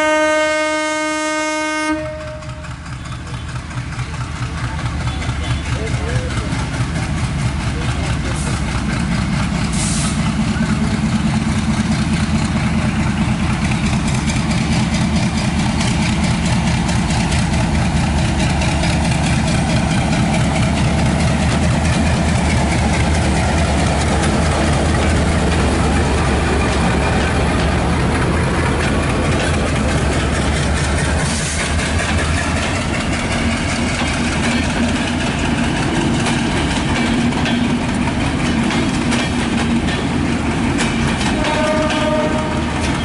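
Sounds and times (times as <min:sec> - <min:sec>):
diesel locomotive engine drone: 0:00.0 - 0:43.0
train coaches rolling by: 0:00.0 - 0:43.0.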